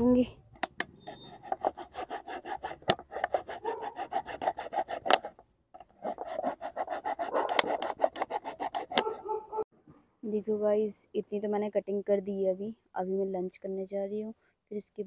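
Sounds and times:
knife sawing through plastic bottle: 1.0 - 9.3.

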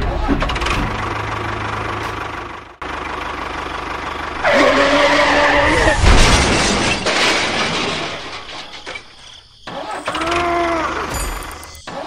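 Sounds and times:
tyre skid squeal: 4.4 - 12.0
heavy crash thud: 5.6 - 9.2.

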